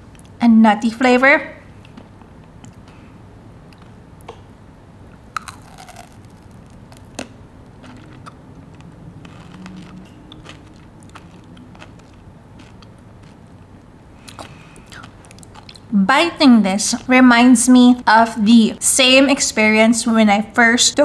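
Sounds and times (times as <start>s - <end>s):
chewing crunchy chocolate bar: 5.4s - 13.6s, 14.2s - 15.9s.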